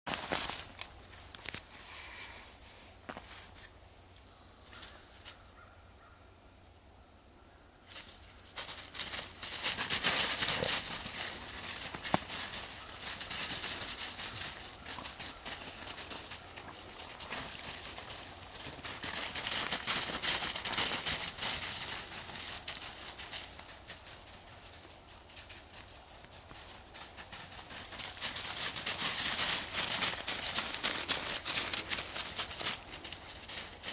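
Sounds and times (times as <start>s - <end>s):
footsteps crunching through snow: 0.1s - 1.6s, 3.0s - 3.9s, 7.9s - 24.7s, 26.6s - 33.9s
dry leaves and twigs rustling: 0.1s - 5.7s, 7.8s - 33.9s.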